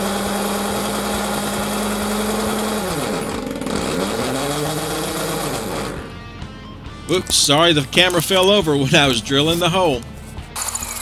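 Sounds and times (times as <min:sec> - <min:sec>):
electric drill drilling: 0:00.0 - 0:06.2, 0:10.6 - 0:11.0.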